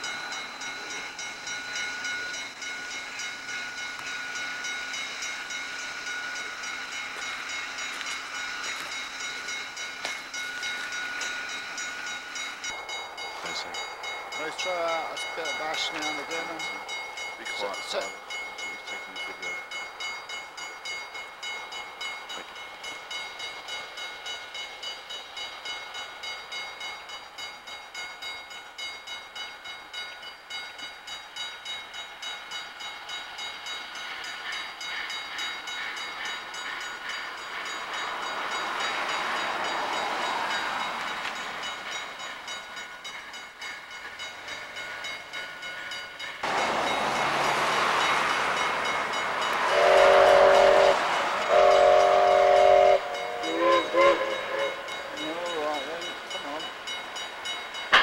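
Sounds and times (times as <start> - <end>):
steam locomotive chuffing: 0.0 - 58.0
steam hissing: 33.0 - 58.0.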